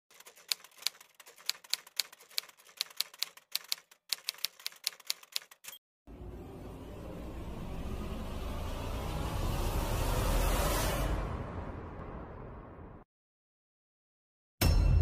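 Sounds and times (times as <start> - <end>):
typewriter key clicks: 0.1 - 5.8
low rising noise: 6.1 - 13.0.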